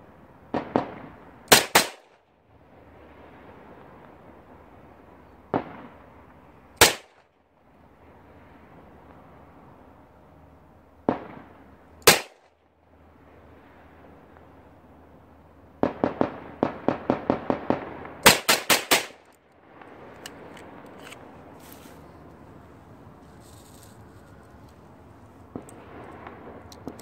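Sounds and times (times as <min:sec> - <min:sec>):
gunshots with echo: 0:12.1 - 0:12.4, 0:15.8 - 0:19.3.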